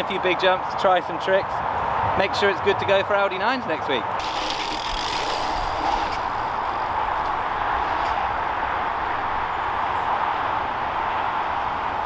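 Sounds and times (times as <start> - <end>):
bike tyres rolling on dirt: 4.2 - 12.0.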